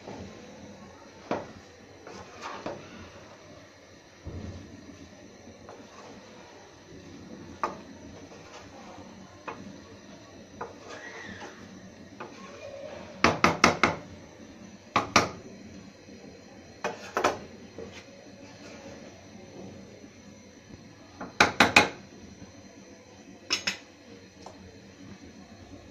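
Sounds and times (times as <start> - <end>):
spatula turning rice in a pan: 0.0 - 25.9
spatula knocking against pan: 13.2 - 14.0, 14.9 - 15.4, 21.2 - 22.0.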